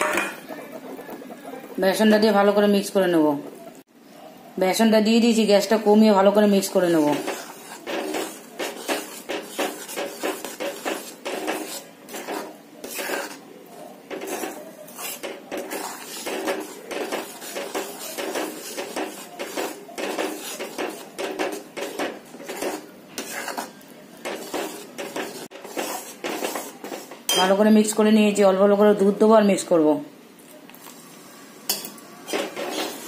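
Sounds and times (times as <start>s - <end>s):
spatula scraping a metal pan: 6.6s - 27.4s, 31.7s - 33.0s.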